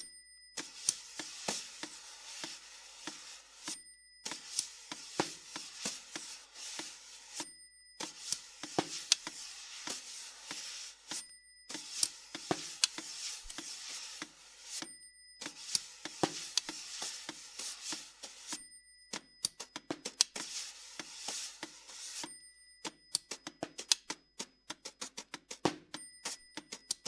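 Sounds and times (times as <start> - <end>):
high ringing metallic tone: 0.0 - 23.7, 26.0 - 27.0
rubbing strokes on snare drum head: 0.6 - 18.6, 20.3 - 22.4
drum stick clicks: 23.1 - 25.6.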